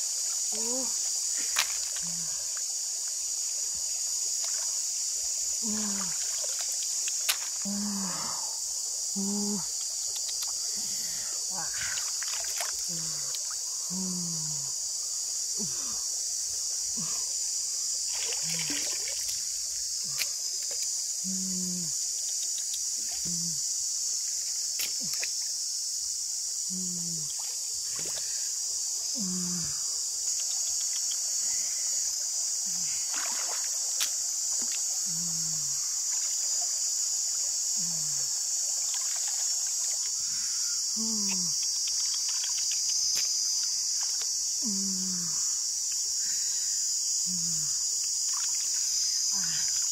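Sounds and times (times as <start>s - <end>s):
high-pitched insect chorus: 0.0s - 49.9s
water trickling and sloshing: 5.8s - 7.6s, 11.8s - 13.6s, 18.1s - 21.0s, 33.0s - 35.0s, 38.5s - 40.2s.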